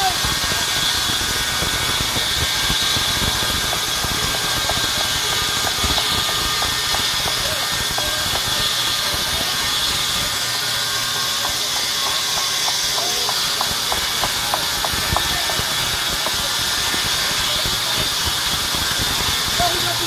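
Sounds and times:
band saw mill hiss and whine: 0:00.0 - 0:20.0.

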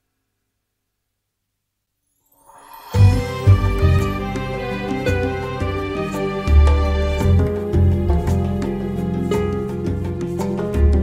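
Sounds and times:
instrumental music with strong bass: 0:03.0 - 0:11.0.

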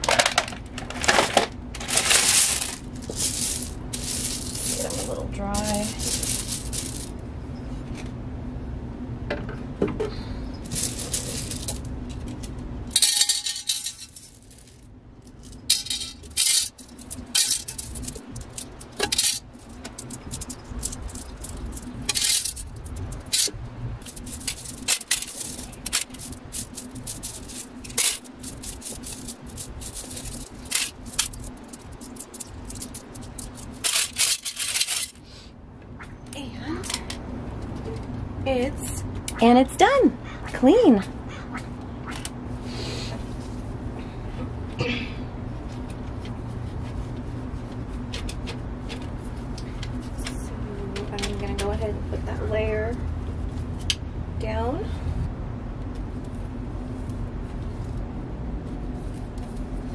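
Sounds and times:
low steady hum: 0:00.0 - 0:59.9
pebbles clinking against glass: 0:01.8 - 0:07.1, 0:10.7 - 0:11.9, 0:13.0 - 0:35.2.

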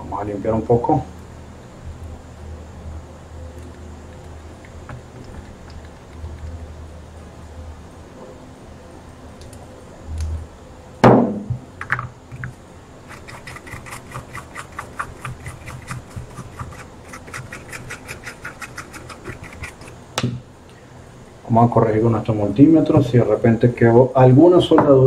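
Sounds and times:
loud knock: 0:11.0 - 0:11.6
brush scrubbing circuit board: 0:13.0 - 0:20.0.

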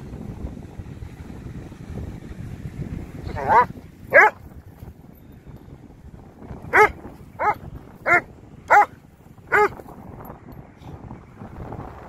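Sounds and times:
dog barking: 0:03.3 - 0:04.4, 0:06.7 - 0:09.8.

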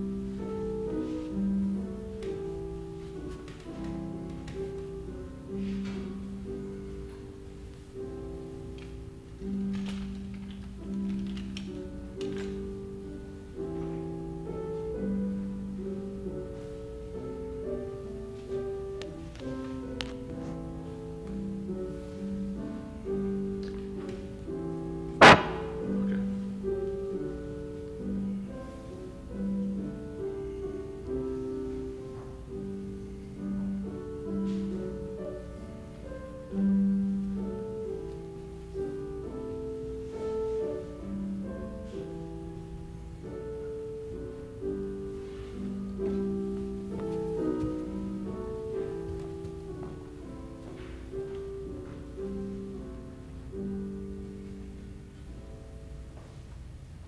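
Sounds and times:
slow keyboard music: 0:00.0 - 0:57.0
sharp knock: 0:25.2 - 0:26.1.

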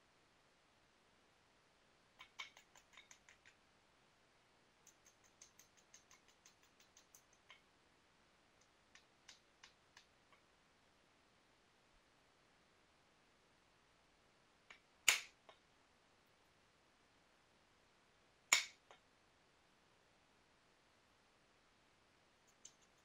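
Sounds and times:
stone knapping clicks: 0:02.2 - 0:03.6, 0:04.8 - 0:07.6, 0:14.7 - 0:15.6, 0:18.5 - 0:19.0, 0:22.5 - 0:23.0.

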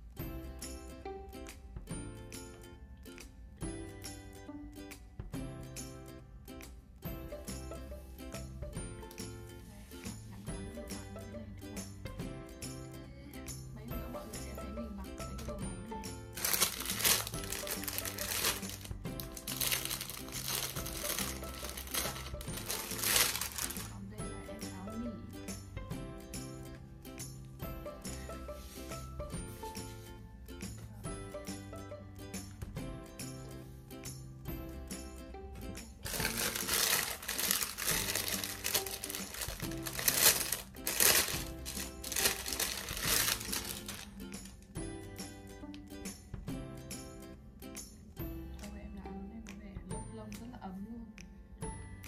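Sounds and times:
background music: 0:00.0 - 0:52.0
plastic packaging crinkling: 0:16.4 - 0:24.0, 0:36.0 - 0:44.6.

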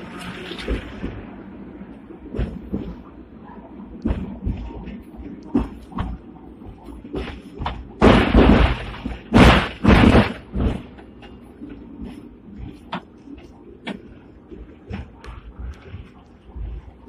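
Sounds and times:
tram clattering and banging: 0:00.0 - 0:17.0.

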